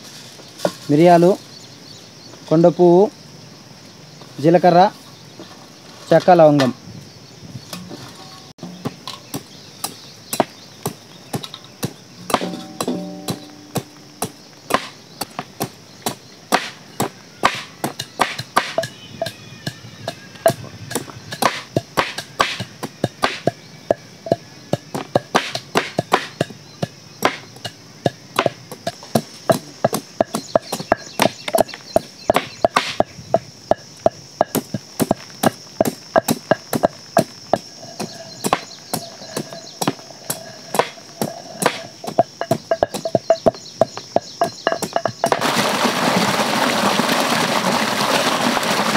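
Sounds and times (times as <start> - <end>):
cleaver chopping fruit: 8.6 - 19.0, 20.5 - 23.6, 24.3 - 45.5.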